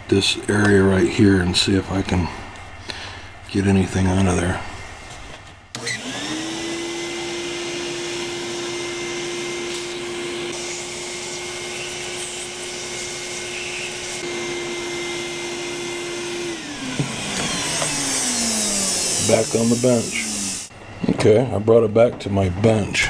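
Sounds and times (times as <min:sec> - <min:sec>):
vacuum cleaner whining: 0:05.7 - 0:21.2.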